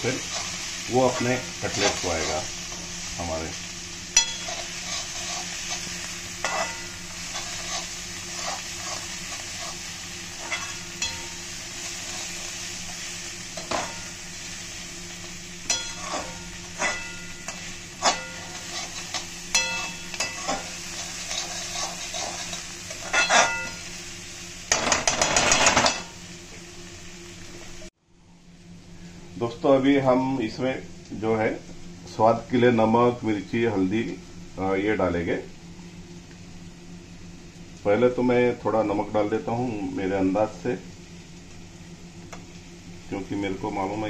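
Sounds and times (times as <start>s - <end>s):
vegetables sizzling in a pan: 0.0s - 44.0s
metal skimmer scraping a pan: 4.1s - 11.4s, 15.7s - 23.8s, 24.7s - 26.2s.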